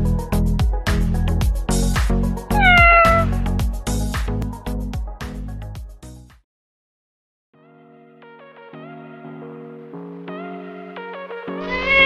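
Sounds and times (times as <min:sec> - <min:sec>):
cat meowing: 0:02.5 - 0:03.4, 0:11.6 - 0:12.0
upbeat electronic music: 0:02.6 - 0:03.4.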